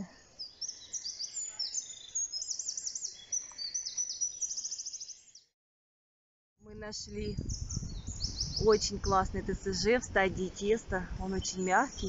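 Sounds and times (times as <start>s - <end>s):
songbirds singing: 0.0s - 5.5s, 6.7s - 12.0s
bird trills: 0.4s - 5.4s.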